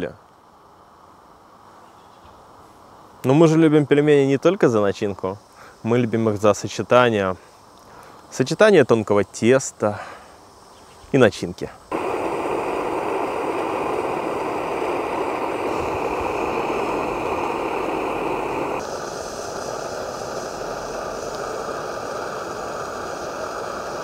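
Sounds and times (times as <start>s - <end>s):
stove burner roar: 11.9s - 24.0s.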